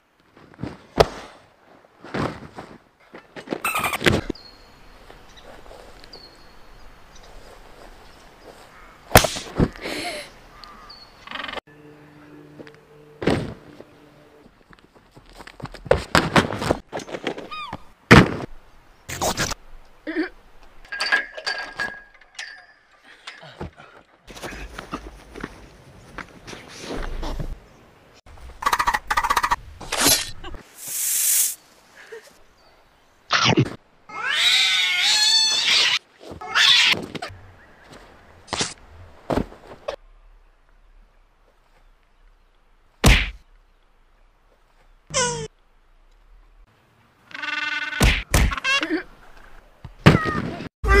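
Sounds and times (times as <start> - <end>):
body thudding onto crash mats: 13.2 - 13.7
brief rushing hiss: 30.7 - 31.6.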